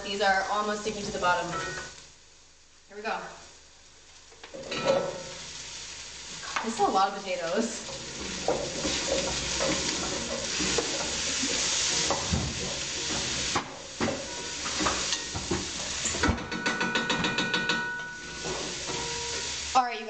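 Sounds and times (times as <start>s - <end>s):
vegetables sizzling in a pot: 0.0s - 20.0s
wooden spoon scraping a pot: 7.5s - 19.7s
spoon knocks on ringing pot: 16.2s - 18.2s.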